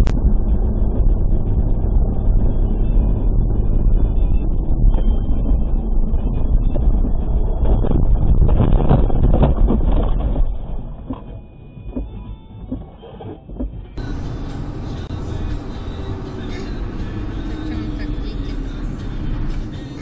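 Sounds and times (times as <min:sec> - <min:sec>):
car road and wind rumble: 0:00.0 - 0:20.0
knocks and scraping: 0:04.5 - 0:14.4.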